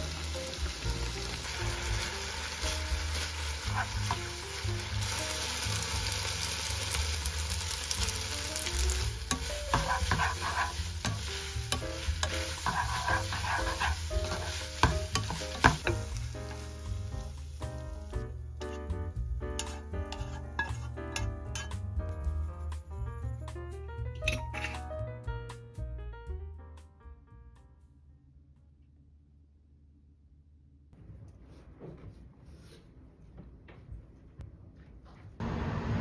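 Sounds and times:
food sizzling in frying pan: 0.0s - 18.2s, 19.6s - 21.6s
tongs scraping pan: 8.7s - 16.2s, 19.6s - 21.8s.

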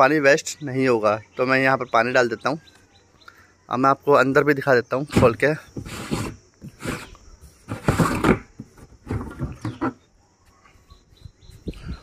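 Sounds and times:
plastic lid grinding scrapes: 5.1s - 10.1s.

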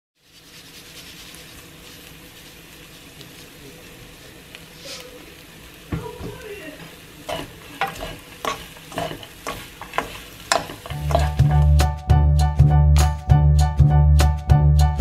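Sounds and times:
wooden spatulas scraping a wok: 0.2s - 3.6s, 6.8s - 11.8s
music with steady beat: 10.6s - 15.0s.

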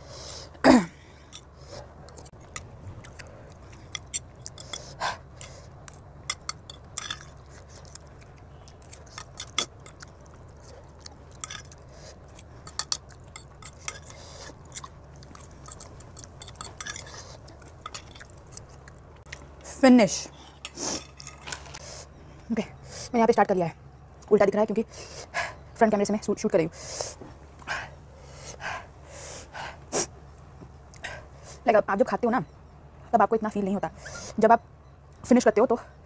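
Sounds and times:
steady low hum: 0.0s - 36.0s
chewing noodles: 2.1s - 19.7s
fork clinking and scraping on plate: 6.3s - 7.6s, 11.3s - 11.8s, 12.6s - 14.9s, 15.6s - 18.3s.

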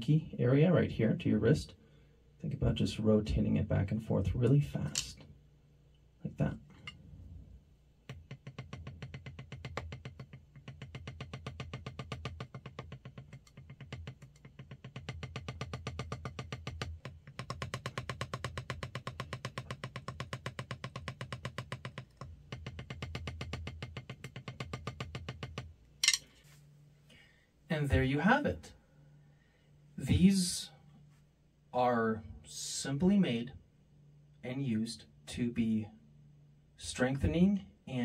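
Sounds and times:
drumstick tapping practice pad: 8.0s - 26.3s.

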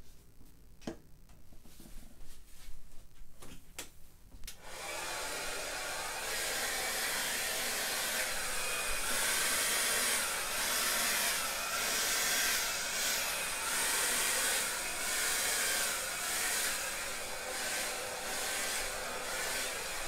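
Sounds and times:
hair dryer blowing: 4.6s - 20.0s.

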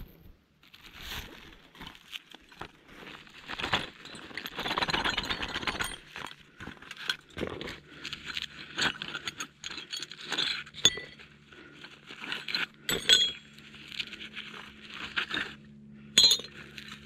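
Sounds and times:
tool roll rustling: 2.8s - 15.6s
metal spanners clinking: 3.6s - 7.4s, 8.1s - 11.3s, 12.2s - 13.5s, 16.2s - 17.0s.

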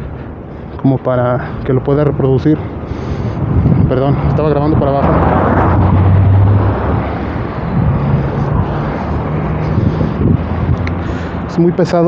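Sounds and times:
street traffic rumble: 0.0s - 12.0s
vehicle engine running: 5.0s - 11.4s.

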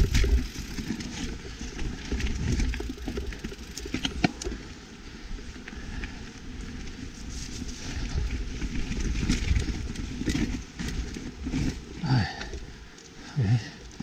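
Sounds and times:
bike clattering and knocking: 0.0s - 4.6s
wind noise: 0.0s - 4.6s, 5.4s - 11.7s
bike tyres rumbling on dirt: 0.0s - 14.0s.

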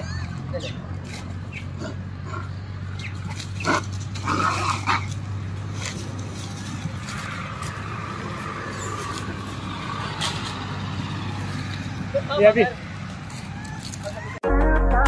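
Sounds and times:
sharp animal calls: 0.0s - 5.4s
drawn-out animal call: 0.0s - 14.4s.

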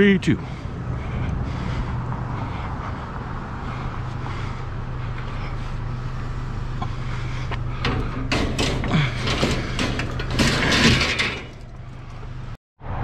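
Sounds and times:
vehicle engine idling: 0.0s - 12.6s.

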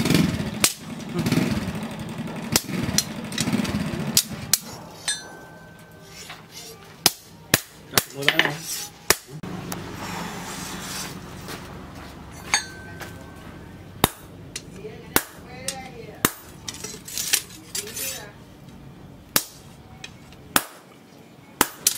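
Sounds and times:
hammer striking metal on anvil: 4.1s - 9.4s, 12.4s - 16.6s, 19.3s - 20.9s, 21.6s - 21.9s.

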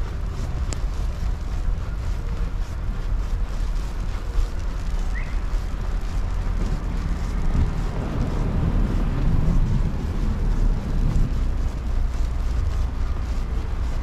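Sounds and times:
street traffic: 0.0s - 14.0s
wind on microphone: 0.0s - 14.0s.

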